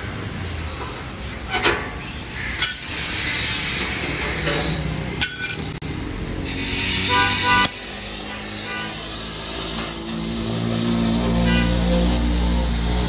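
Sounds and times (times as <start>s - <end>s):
metal tools clinking: 2.6s - 3.0s, 5.2s - 5.8s.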